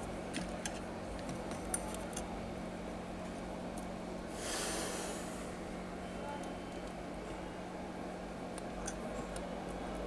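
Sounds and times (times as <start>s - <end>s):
steady low hum: 0.0s - 10.0s
short hiss of air: 4.3s - 5.6s.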